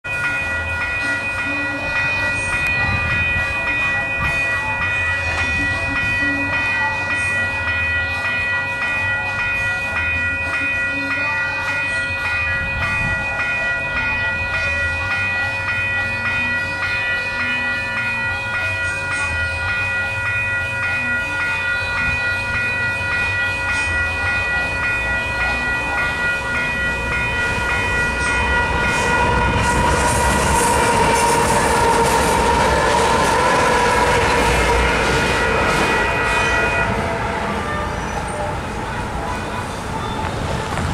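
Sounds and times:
railroad crossing bells ringing: 0.0 - 40.9
diesel locomotive rumble: 12.1 - 40.9.

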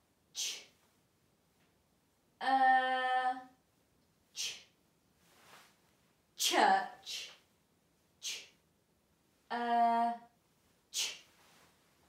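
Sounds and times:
woman sounding out a word: 2.4 - 3.5, 6.4 - 7.3, 9.5 - 10.3.

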